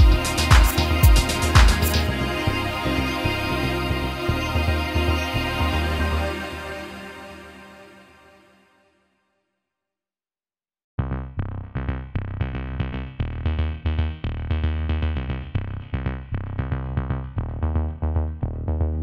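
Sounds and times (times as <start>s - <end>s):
drum machine beat: 0.0s - 2.1s
electronic background music: 0.0s - 8.5s
synthesizer notes: 0.0s - 8.6s.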